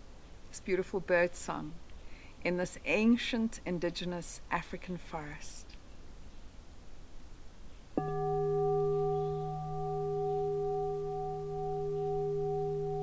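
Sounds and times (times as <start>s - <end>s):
singing bowl struck and ringing: 8.0s - 13.0s.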